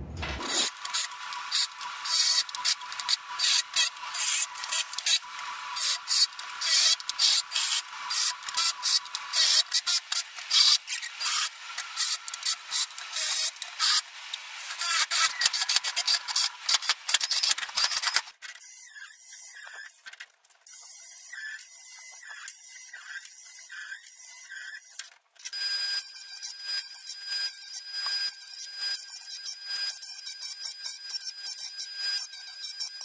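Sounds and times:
angle grinder cutting steel: 0.3 - 18.2
drill boring into wood: 0.4 - 20.0, 20.8 - 33.0.

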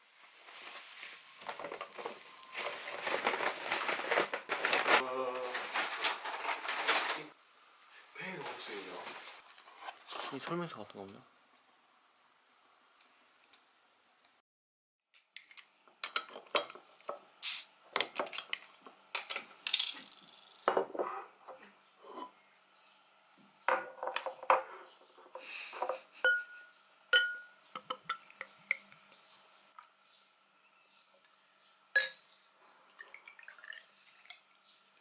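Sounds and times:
glassware clinking on a table: 25.8 - 28.2, 32.0 - 32.2.

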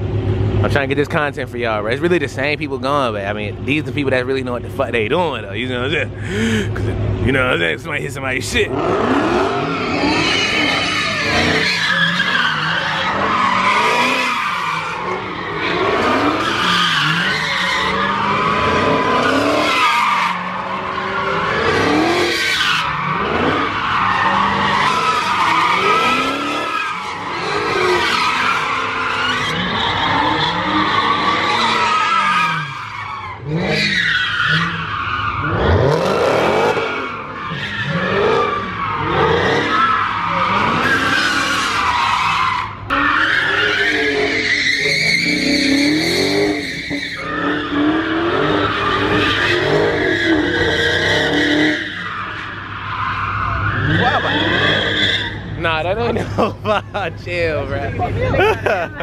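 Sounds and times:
car engine revving: 0.0 - 58.9
tyres squealing: 9.5 - 35.6.

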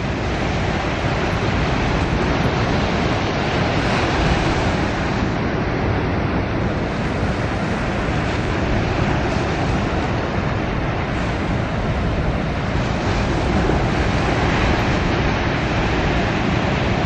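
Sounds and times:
surf breaking on beach: 0.0 - 17.0
wind buffeting microphone: 0.0 - 17.0.

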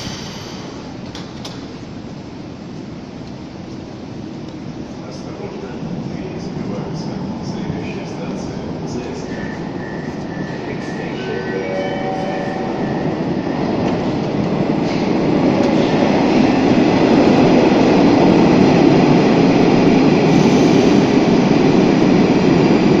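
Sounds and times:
metro train running: 0.0 - 23.0.

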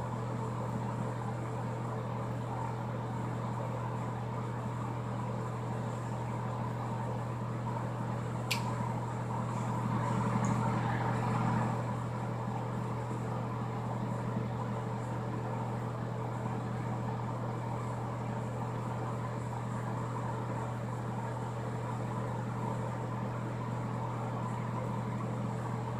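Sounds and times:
bathroom exhaust fan humming: 0.0 - 25.9
short click: 8.5 - 8.7.

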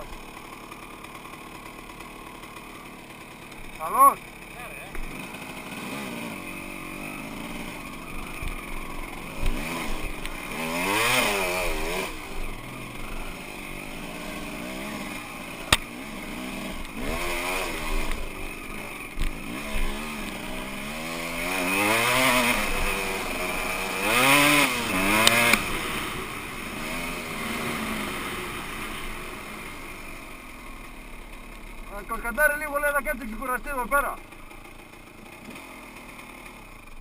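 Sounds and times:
dirt bike engine revving: 0.0 - 37.0.

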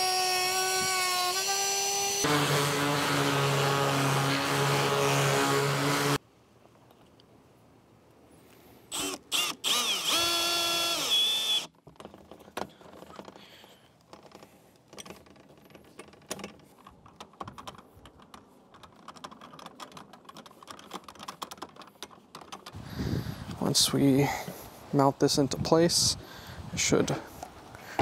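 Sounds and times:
cordless drill whine: 0.0 - 6.2, 8.9 - 11.7.

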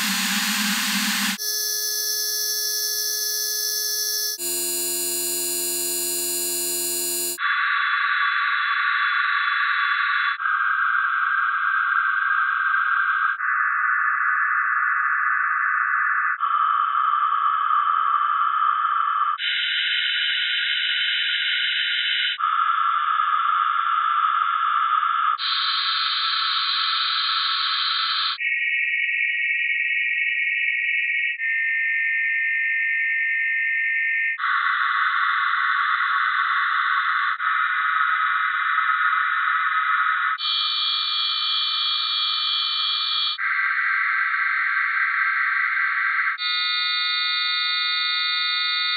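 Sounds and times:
clusters of steady sine tones: 0.0 - 32.0.

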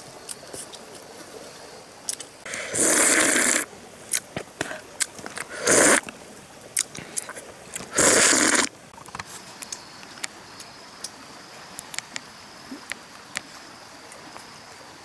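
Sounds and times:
person slurping: 2.5 - 3.7, 5.4 - 6.0, 6.8 - 8.7.

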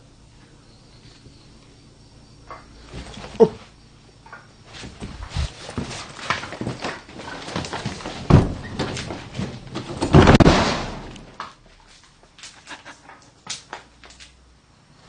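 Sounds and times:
knocks and thumps: 4.3 - 11.4.

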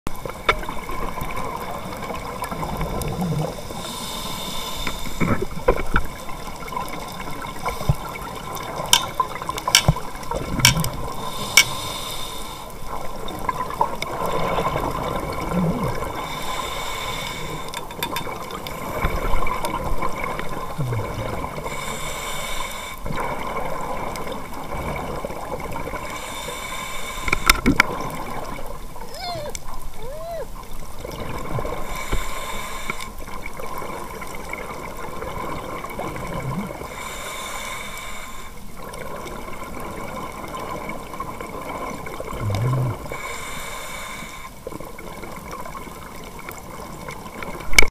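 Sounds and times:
watery wash: 0.1 - 47.9
bubbles hissing underwater: 0.6 - 28.8, 31.0 - 45.9
diver breathing through regulator: 3.7 - 5.6, 11.2 - 12.8, 16.0 - 17.9, 21.0 - 23.1, 26.0 - 27.6, 31.8 - 33.2, 36.9 - 38.6, 42.4 - 44.6.

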